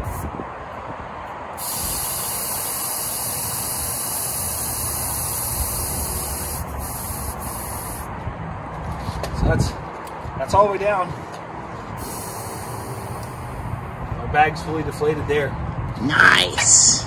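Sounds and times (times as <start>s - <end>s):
compressed air hissing from valve: 1.6s - 8.1s, 12.0s - 13.8s.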